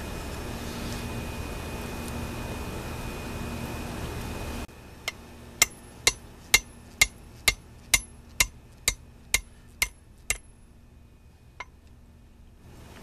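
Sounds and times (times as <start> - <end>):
hammer on anvil ringing: 5.1 - 10.5.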